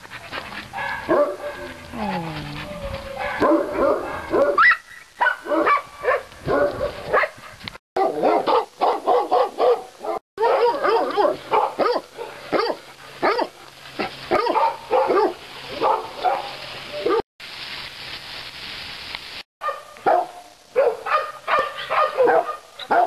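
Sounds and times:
dogs barking: 0.7 - 1.9, 3.0 - 7.4, 8.0 - 17.2, 19.6 - 23.0.

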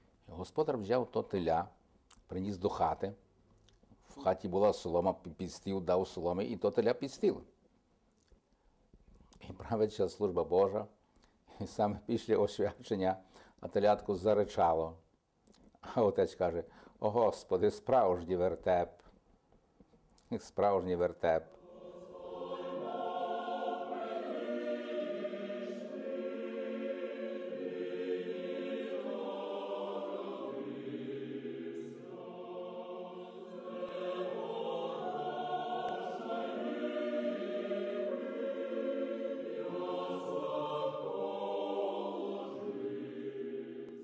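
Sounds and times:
choir singing a hymn: 21.2 - 44.0.

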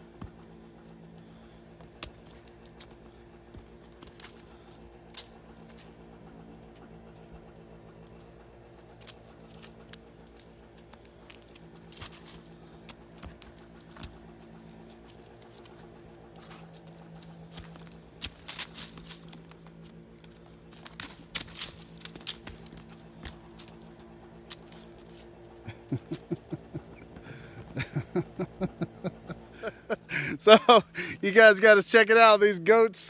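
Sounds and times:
faint steady hum: 0.0 - 33.0
footsteps in dry leaves: 2.0 - 6.2, 8.8 - 26.8.

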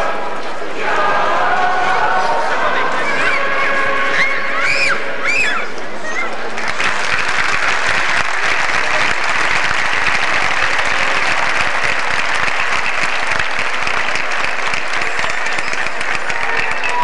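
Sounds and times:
audience applauding: 6.4 - 17.0.

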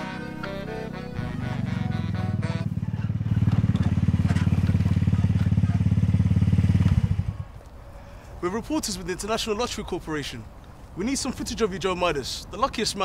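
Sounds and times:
motor scooter engine running: 0.0 - 7.4.

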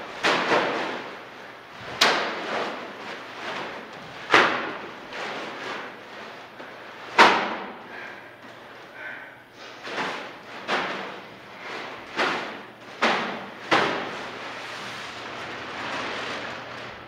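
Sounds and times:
heavy bags thudding on floor: 0.1 - 8.1, 9.0 - 14.5
plastic bag rustling: 9.6 - 17.0.

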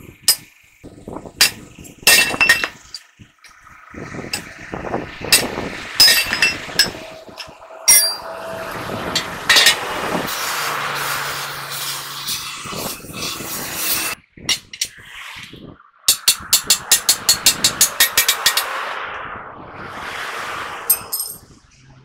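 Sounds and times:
sledgehammer striking steel plate: 1.4 - 3.0, 5.3 - 8.4, 16.1 - 18.8
gas torch hissing: 9.2 - 14.2.

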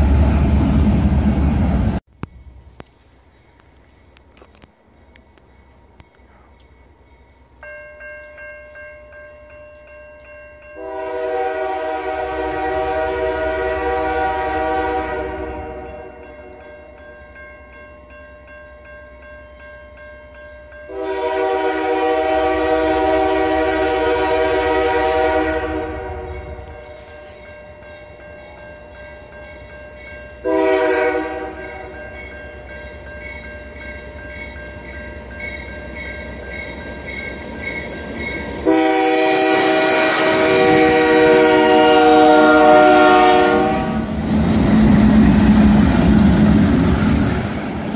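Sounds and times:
train rumble: 0.0 - 47.9
crossing warning bell ringing: 4.4 - 13.0, 13.6 - 44.0
locomotive air horn: 10.8 - 16.3, 20.9 - 27.2, 30.4 - 31.9, 38.6 - 44.2.

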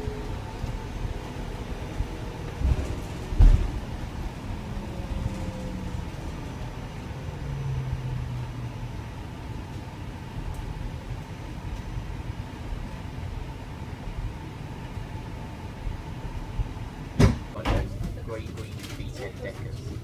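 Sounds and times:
bus cabin rumble: 0.0 - 20.0.

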